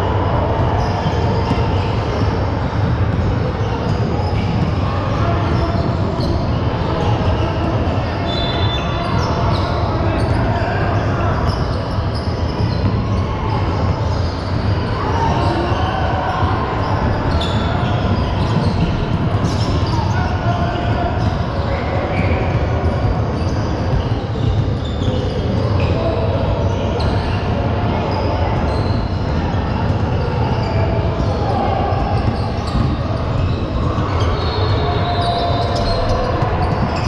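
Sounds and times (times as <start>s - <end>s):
basketball bouncing on court: 16.4s - 26.0s, 32.0s - 33.6s.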